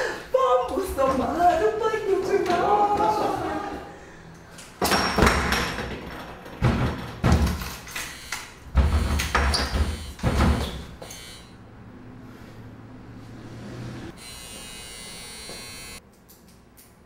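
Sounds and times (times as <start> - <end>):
electric doorbell buzzer: 8.0 - 9.3, 11.0 - 11.6, 14.2 - 16.0.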